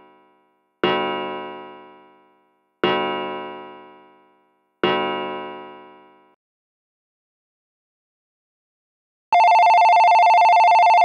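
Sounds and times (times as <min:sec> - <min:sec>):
wall clock striking: 0:00.8 - 0:02.1, 0:02.8 - 0:04.2, 0:04.8 - 0:06.1.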